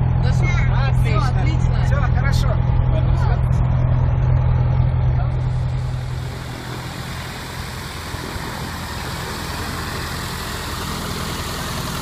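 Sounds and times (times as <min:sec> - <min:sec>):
light aircraft engine idling: 0:01.2 - 0:12.0.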